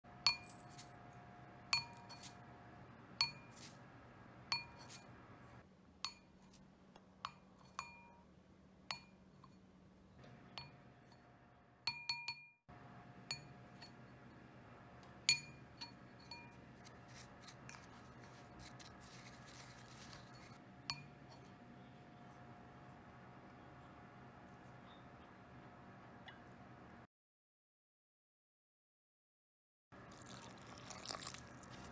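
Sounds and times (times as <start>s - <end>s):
spoon clinking on ceramic bowl: 0.3s - 0.9s, 1.7s - 2.4s, 3.2s - 3.7s, 4.5s - 5.1s, 7.2s - 8.2s, 10.6s - 11.3s, 13.3s - 14.2s, 15.3s - 16.7s, 17.7s - 21.6s
dry mix rustling: 16.6s - 20.6s.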